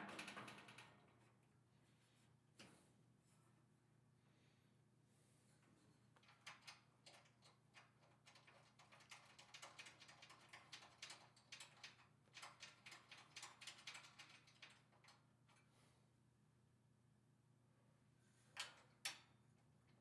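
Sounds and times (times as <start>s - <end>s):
cable manager clicking and rattling: 6.2s - 15.6s.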